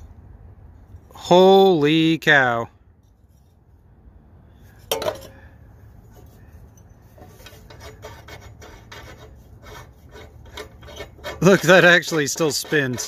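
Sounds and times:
rusty metal scraping: 3.0s - 3.8s, 4.5s - 13.0s
metal clank: 4.8s - 5.4s.

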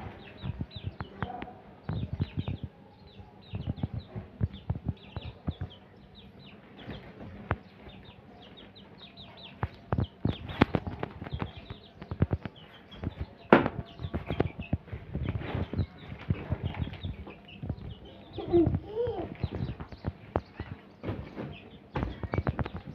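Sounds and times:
chicks peeping: 0.0s - 22.9s
sharp taps and knocks: 9.6s - 22.9s.

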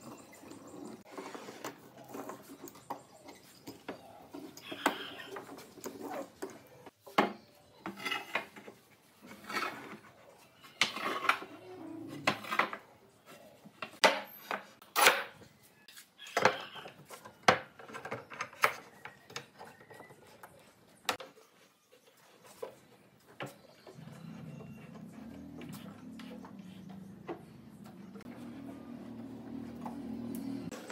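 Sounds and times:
wood rubbing and sliding: 7.9s - 14.0s.

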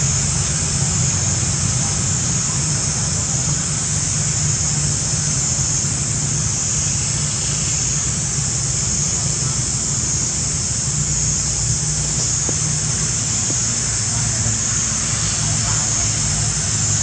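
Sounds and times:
constant high hiss: 0.0s - 17.0s.

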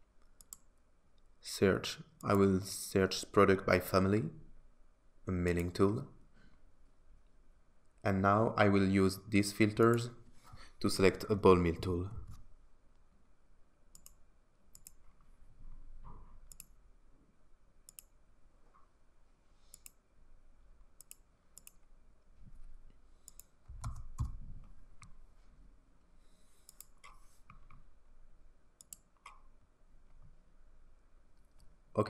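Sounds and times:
computer mouse clicking: 0.2s - 0.7s, 13.9s - 15.2s, 16.4s - 16.8s, 17.9s - 18.2s, 19.7s - 20.0s, 21.0s - 21.9s, 23.2s - 25.2s, 26.6s - 27.9s, 28.8s - 29.5s.

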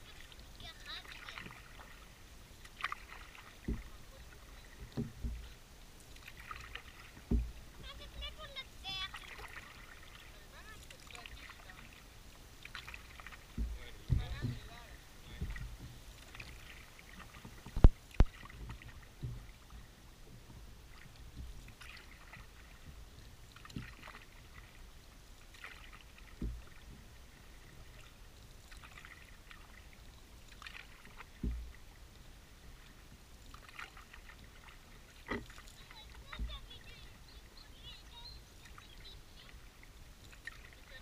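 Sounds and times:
paddle splashing water: 0.0s - 41.0s
knocks on kayak hull: 3.6s - 4.0s, 4.8s - 5.5s, 7.2s - 7.6s, 13.3s - 16.6s, 26.3s - 26.8s, 31.2s - 31.8s.

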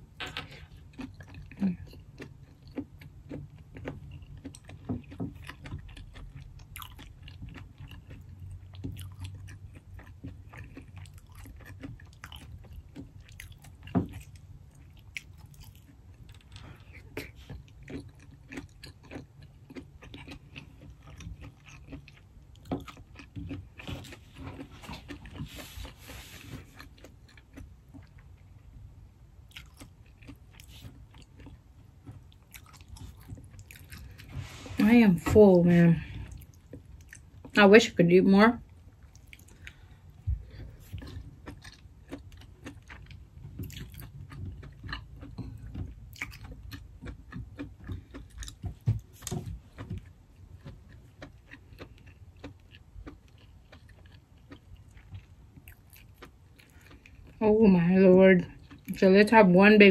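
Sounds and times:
chewing and biting: 0.0s - 37.6s, 38.6s - 59.4s.

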